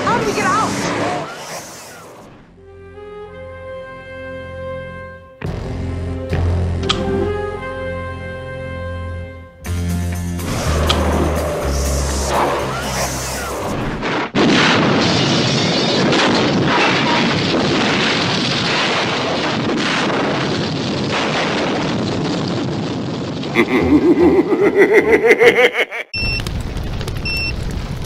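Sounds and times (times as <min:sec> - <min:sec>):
dense roar of noise: 0:10.4 - 0:25.4
car exploding: 0:13.7 - 0:23.5.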